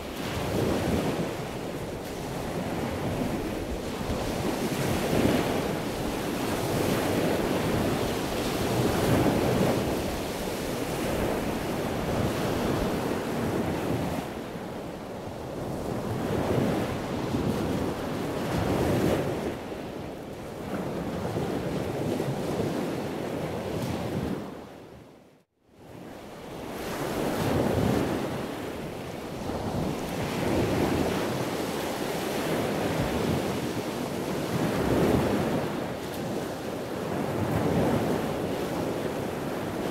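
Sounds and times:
ocean waves washing: 0.0s - 24.6s, 26.3s - 39.9s
wind buffeting microphone: 0.0s - 24.6s.

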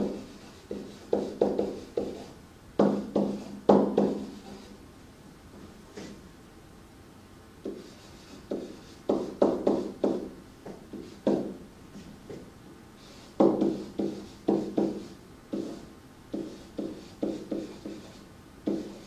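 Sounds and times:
pen writing on a surface: 0.0s - 2.3s, 7.6s - 10.2s, 13.1s - 19.0s.

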